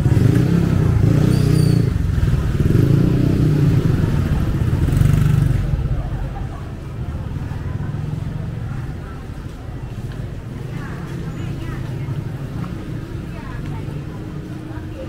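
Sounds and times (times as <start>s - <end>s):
motorcycle engine running: 0.0s - 6.4s
street chatter: 0.0s - 15.0s.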